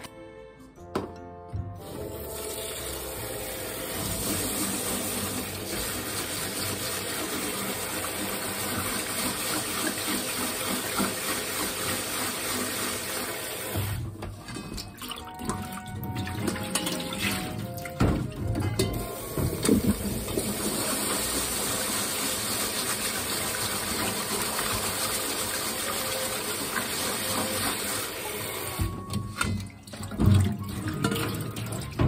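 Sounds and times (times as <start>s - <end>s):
soft background music: 0.0s - 12.1s, 13.7s - 32.0s
faucet spray running onto rice: 2.2s - 13.8s, 20.4s - 28.8s.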